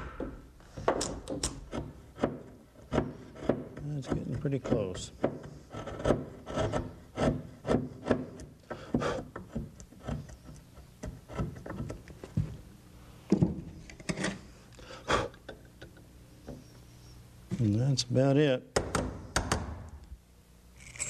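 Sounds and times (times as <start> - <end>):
chisel scraping into wood: 1.4 - 12.0.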